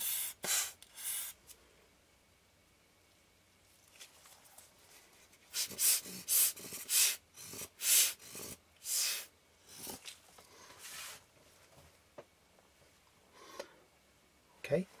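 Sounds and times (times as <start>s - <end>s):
rubber blower bulb puffing air: 0.0s - 1.5s, 5.5s - 9.3s.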